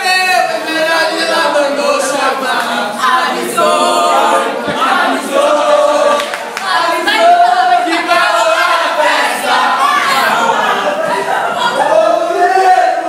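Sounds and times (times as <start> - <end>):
young people singing: 0.0 - 13.0
young people shouting: 6.7 - 13.0.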